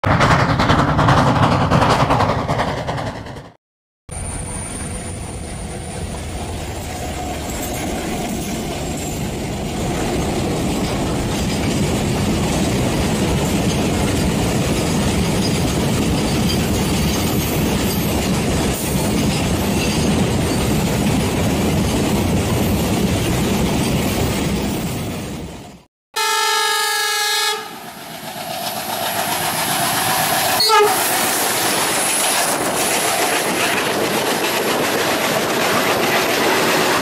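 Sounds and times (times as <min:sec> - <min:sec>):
model train wheels clattering: 0:00.1 - 0:03.5.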